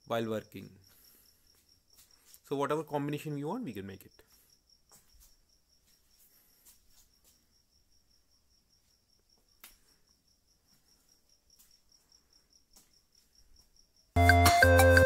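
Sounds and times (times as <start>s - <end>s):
cricket chirping: 0.0s - 14.2s
loud music: 14.2s - 15.0s.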